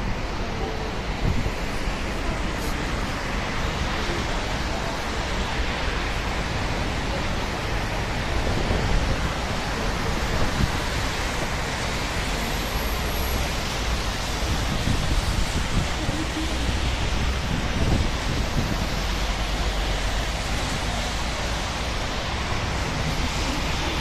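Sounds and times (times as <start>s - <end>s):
wind noise on microphone: 0.0s - 5.0s, 8.1s - 12.0s, 13.8s - 24.0s.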